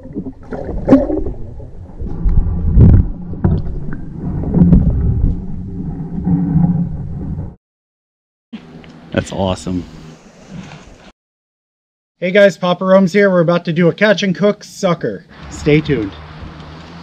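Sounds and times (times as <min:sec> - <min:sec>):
underwater rumble of moving water: 0:00.0 - 0:07.6.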